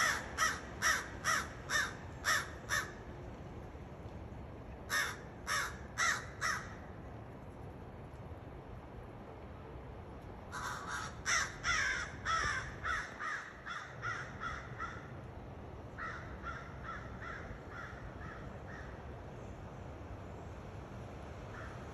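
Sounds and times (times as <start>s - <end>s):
crow cawing: 0.0s - 3.0s, 4.9s - 6.8s, 10.5s - 15.2s, 16.0s - 19.0s, 21.5s - 21.8s.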